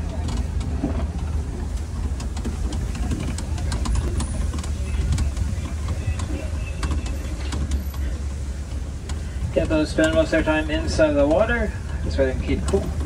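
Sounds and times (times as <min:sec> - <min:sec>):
low engine rumble: 0:00.0 - 0:13.0
vehicle body rattling and knocking: 0:00.0 - 0:13.0.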